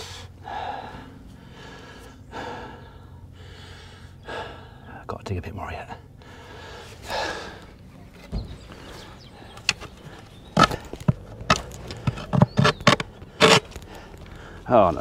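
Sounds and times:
heavy breath: 0.0 - 5.0, 6.2 - 7.8, 13.1 - 14.7
spade dull thump: 8.2 - 8.7.

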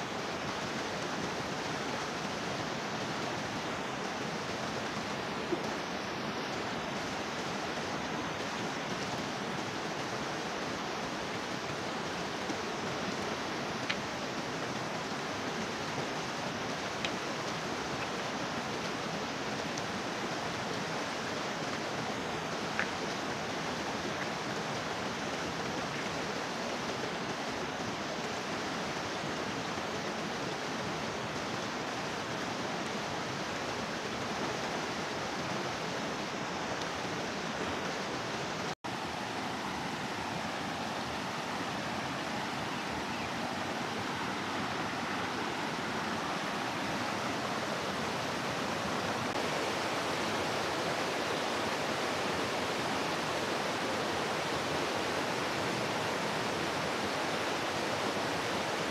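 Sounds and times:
flowing water rushing: 0.0 - 58.9.

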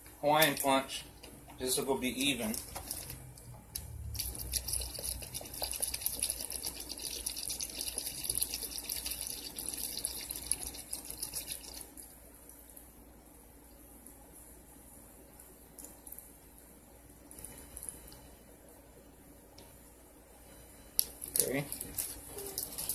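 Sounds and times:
liquid pouring and splashing: 2.2 - 12.2.

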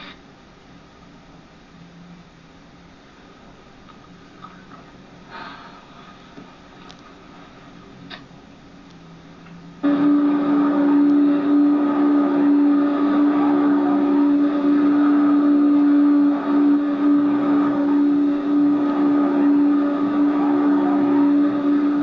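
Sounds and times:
vacuum cleaner motor humming: 9.8 - 22.0.

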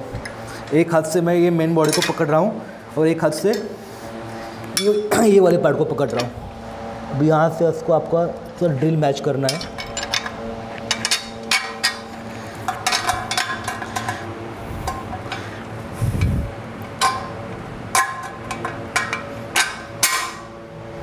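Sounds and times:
steel bolt clinking on metal: 9.5 - 12.1.

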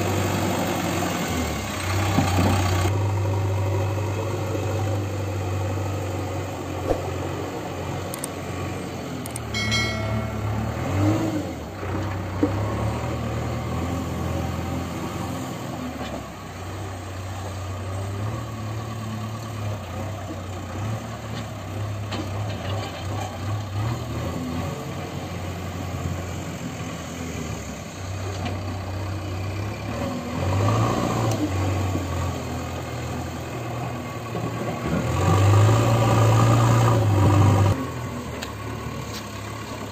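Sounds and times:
diesel engine under load: 0.0 - 39.9.

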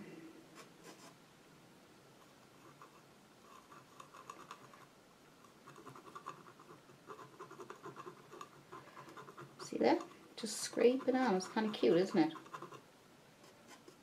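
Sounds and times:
palette knife scraping paint: 5.5 - 12.8.

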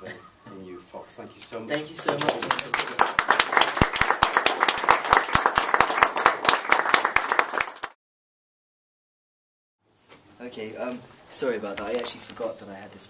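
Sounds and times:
audience applauding: 1.7 - 8.0.

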